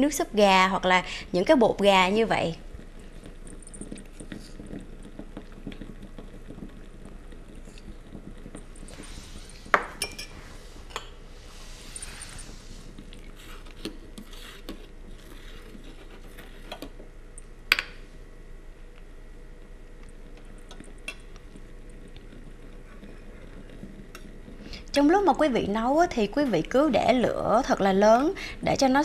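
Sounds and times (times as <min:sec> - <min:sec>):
spoon scraping and stirring: 0:02.2 - 0:17.0.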